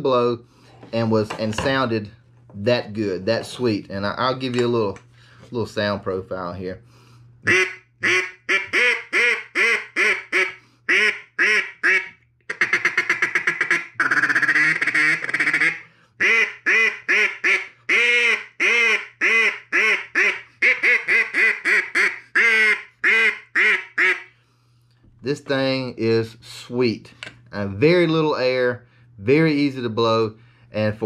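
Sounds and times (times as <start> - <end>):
duck call quacking: 7.4 - 24.3.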